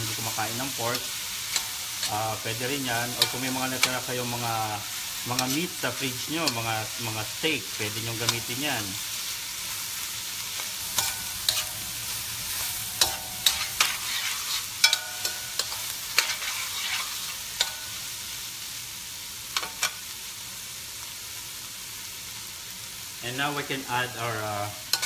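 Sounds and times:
food sizzling in a pan: 0.0s - 25.0s
metal spoon clinking on pan: 3.1s - 4.0s, 11.0s - 11.8s, 13.0s - 14.0s, 14.8s - 16.4s.

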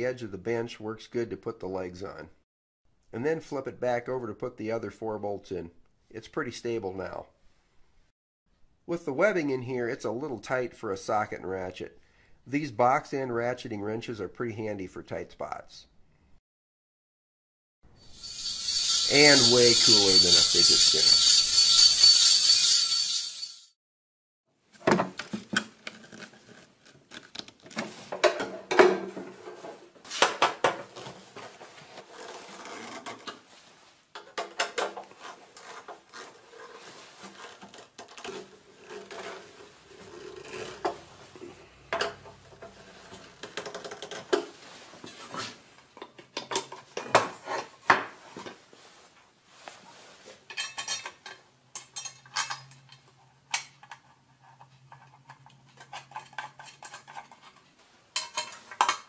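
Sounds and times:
steel parts and tools clinking: 18.1s - 23.7s, 50.5s - 53.0s.

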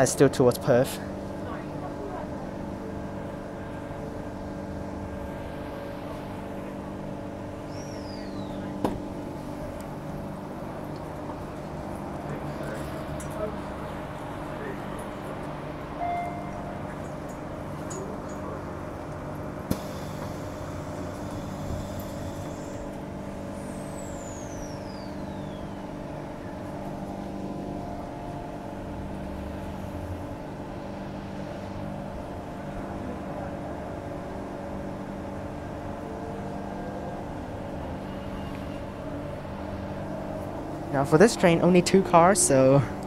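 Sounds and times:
train electrical hum: 0.0s - 43.0s
sharp thump: 8.8s - 9.0s
hiss: 19.7s - 22.9s.

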